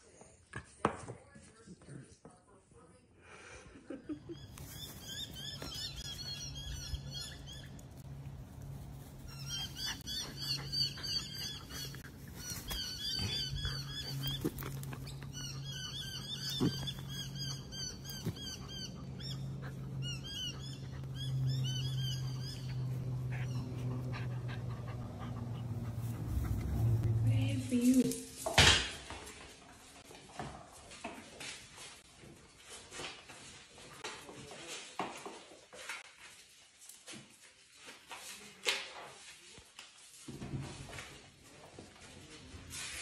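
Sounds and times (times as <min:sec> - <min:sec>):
birds chirping: 0:04.3 - 0:27.5.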